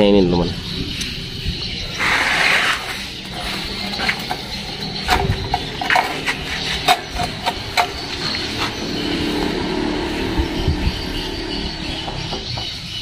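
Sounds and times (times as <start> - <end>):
sharp metallic knocks and clicks: 3.2 - 10.8, 11.4 - 13.0.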